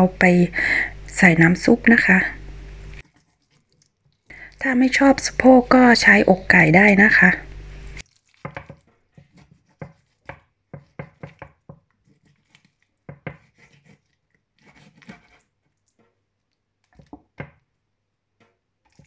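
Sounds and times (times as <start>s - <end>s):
knife scraping on board: 8.4s - 16.2s
knife knocking on wooden board: 8.5s - 11.8s.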